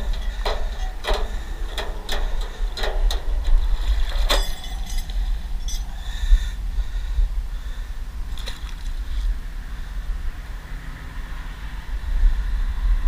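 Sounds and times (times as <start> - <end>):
wind on microphone: 0.0 - 13.0
water splashing: 8.3 - 9.0.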